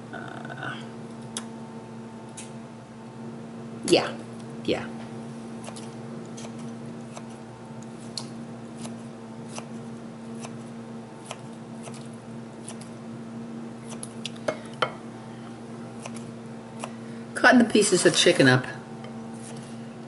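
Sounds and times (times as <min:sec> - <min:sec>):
low steady hum: 0:00.0 - 0:20.0
kitchen shears snipping: 0:05.6 - 0:13.0, 0:13.8 - 0:14.9, 0:16.0 - 0:17.0.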